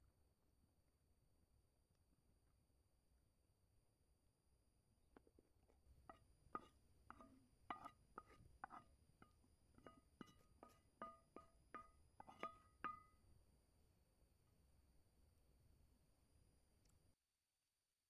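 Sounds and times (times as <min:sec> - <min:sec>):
wooden spoon knocking metal pan: 0:06.1 - 0:13.1.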